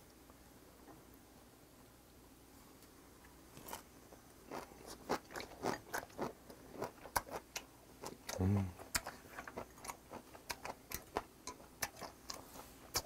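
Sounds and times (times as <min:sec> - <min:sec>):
person chewing: 0:04.5 - 0:13.0.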